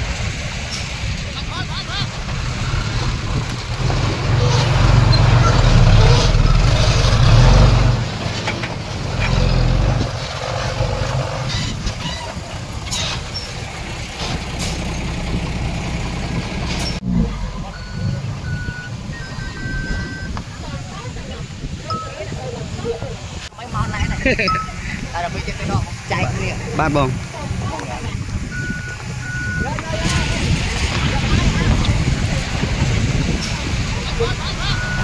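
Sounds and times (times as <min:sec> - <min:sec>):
heavy diesel machinery engine: 0:00.0 - 0:35.0
reversing alarm beeps: 0:17.7 - 0:20.3.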